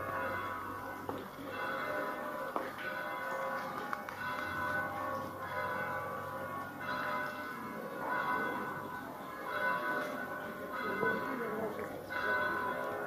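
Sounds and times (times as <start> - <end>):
church bells ringing: 0.0 - 13.0.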